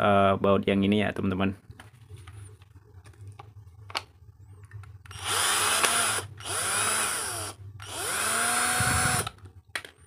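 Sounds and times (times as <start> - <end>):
drill-driver motor whirring: 5.1 - 9.4.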